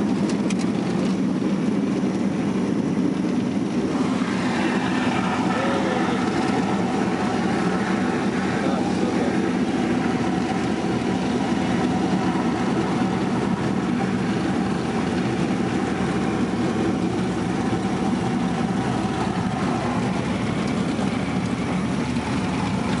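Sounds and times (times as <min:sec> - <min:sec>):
propeller plane engine drone: 0:00.0 - 0:23.0.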